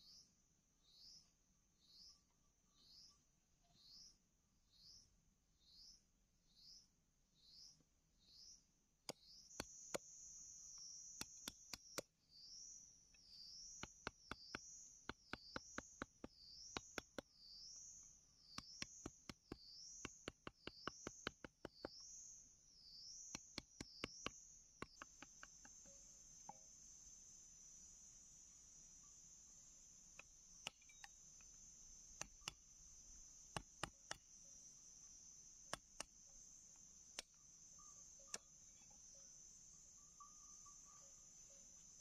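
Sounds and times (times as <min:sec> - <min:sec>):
insect chirping: 0:03.8 - 0:42.0
machete chopping bamboo: 0:11.2 - 0:12.1, 0:13.8 - 0:17.3, 0:18.6 - 0:22.0, 0:23.3 - 0:25.9, 0:33.5 - 0:34.3.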